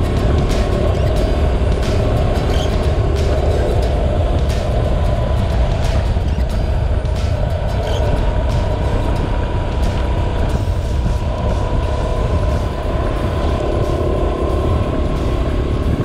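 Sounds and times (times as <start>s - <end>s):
motorcycle engine running: 0.0s - 16.0s
wind and road noise: 0.0s - 16.0s.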